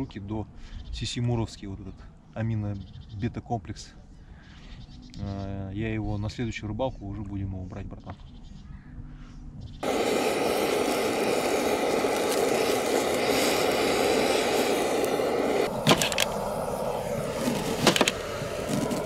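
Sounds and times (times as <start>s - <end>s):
charcoal burning in a grill: 9.8s - 19.0s.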